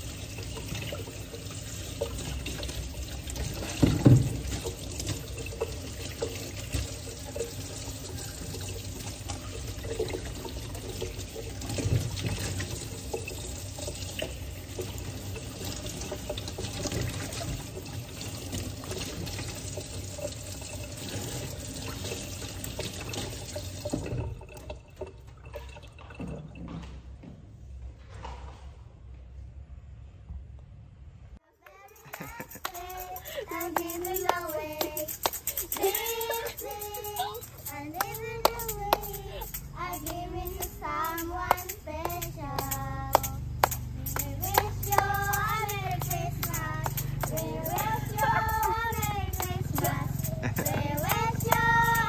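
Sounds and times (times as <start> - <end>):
tap running into steel sink: 2.0 - 24.8.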